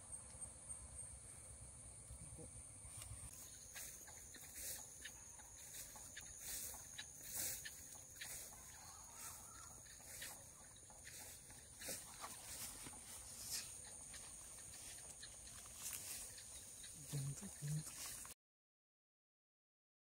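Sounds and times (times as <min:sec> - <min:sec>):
insects droning: 0:00.0 - 0:18.4
footsteps through wet grass: 0:02.9 - 0:18.3.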